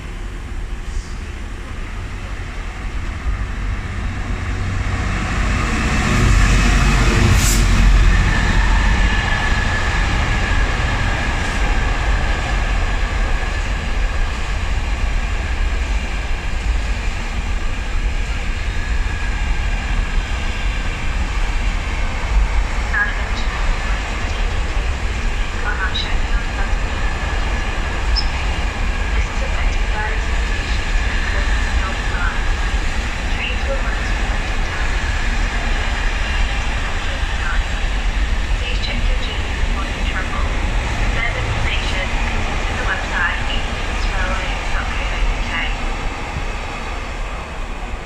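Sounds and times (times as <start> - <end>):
diesel locomotive passing: 0.0 - 48.0
train wheels on rails: 0.0 - 48.0.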